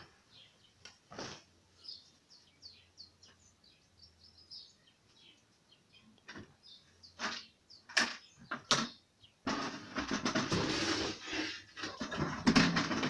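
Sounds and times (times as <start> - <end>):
small bird chirping: 1.7 - 9.5.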